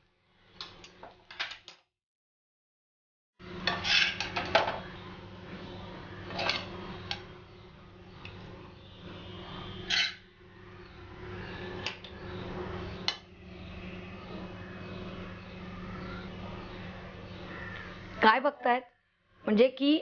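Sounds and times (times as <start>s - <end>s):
metal spatula scraping a pan: 3.6s - 4.4s, 9.3s - 10.2s.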